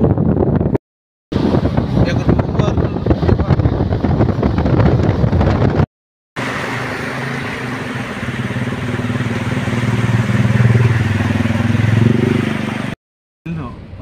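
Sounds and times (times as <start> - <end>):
vehicle engine droning: 6.4 - 14.0.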